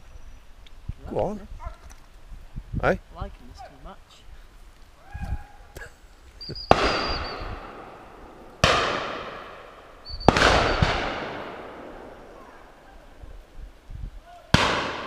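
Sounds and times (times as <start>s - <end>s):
shotgun shots ringing: 6.7s - 12.2s, 14.6s - 15.0s.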